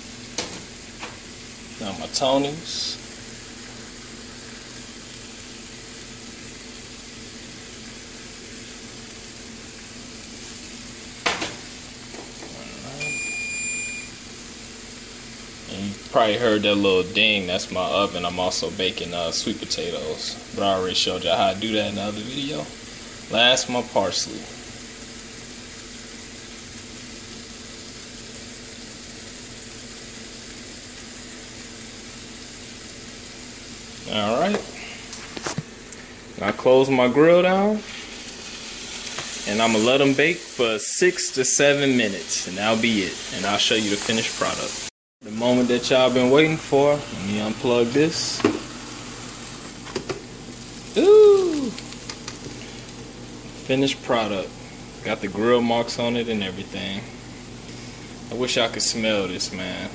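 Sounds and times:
fish sizzling on a grill: 0.0 - 59.9.

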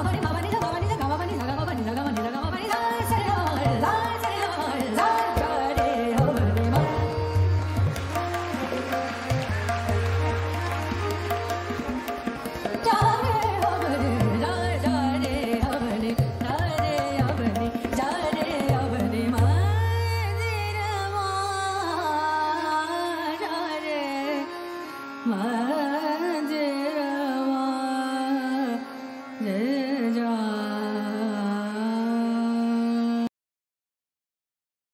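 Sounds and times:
tabla strokes: 0.0 - 21.7.

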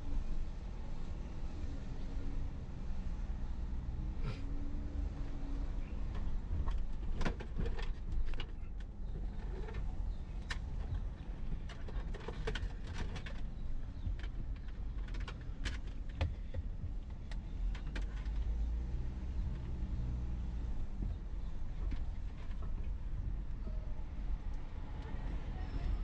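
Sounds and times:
car engine and road rumble: 0.0 - 26.0
sharp clicks and rattles: 6.1 - 18.7.

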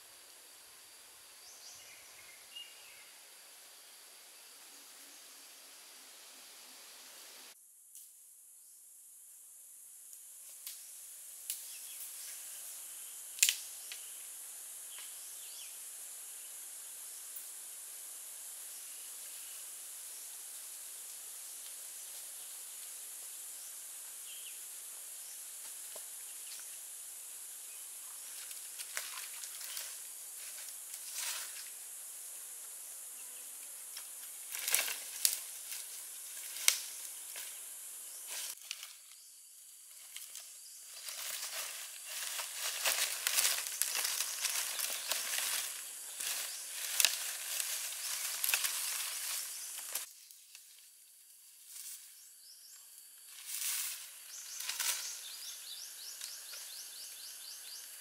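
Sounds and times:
high-pitched insect chorus: 0.0 - 58.0
crackles and snaps: 13.4 - 14.0, 28.2 - 31.7, 33.9 - 37.6, 38.3 - 39.2, 40.0 - 50.9.

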